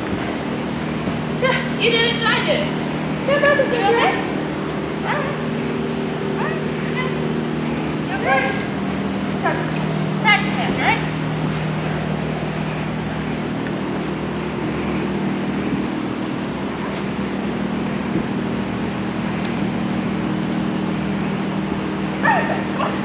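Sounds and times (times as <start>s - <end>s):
low machine hum: 0.0s - 23.0s.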